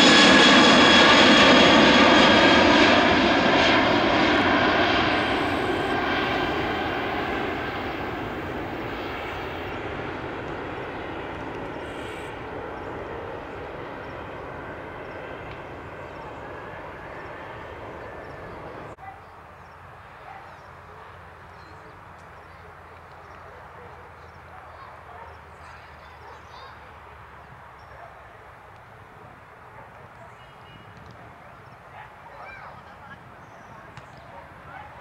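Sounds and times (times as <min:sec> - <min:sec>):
jet engines climbing away: 0:00.0 - 0:19.0.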